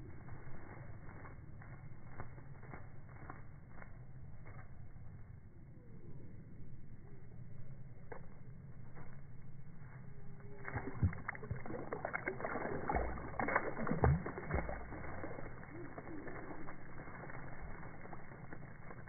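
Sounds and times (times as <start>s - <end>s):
water splashing in birdbath: 10.4s - 19.0s
bird wings beating: 10.5s - 19.0s.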